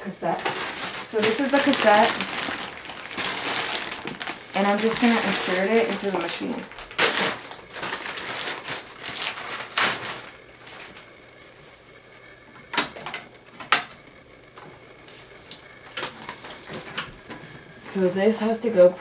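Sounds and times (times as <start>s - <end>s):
plastic packaging crinkling: 0.1s - 11.2s, 15.2s - 17.1s.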